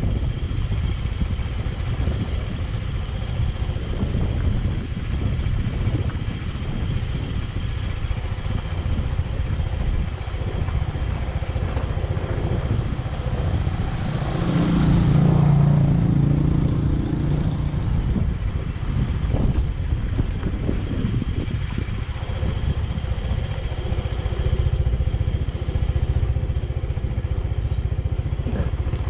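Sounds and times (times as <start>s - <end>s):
motorcycle engine rumble: 0.0s - 29.0s.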